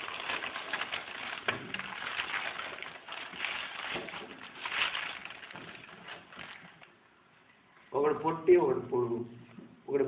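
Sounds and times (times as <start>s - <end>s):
paper and card rustling: 0.0s - 6.9s.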